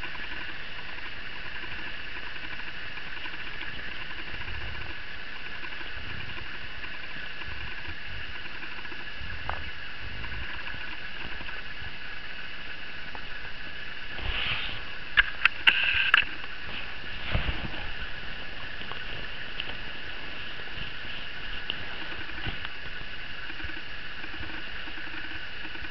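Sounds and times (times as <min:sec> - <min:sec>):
high-pitched electronic whine: 0:00.0 - 0:25.9.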